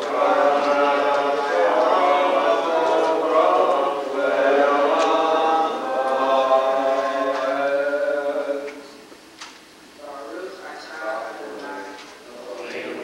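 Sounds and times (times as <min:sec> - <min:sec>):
congregation chanting in unison: 0:00.0 - 0:09.0, 0:12.2 - 0:13.0.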